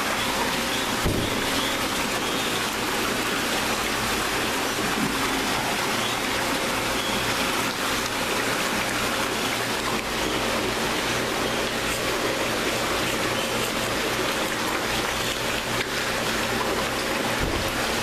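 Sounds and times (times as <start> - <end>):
water rushing and splashing: 0.0 - 18.0.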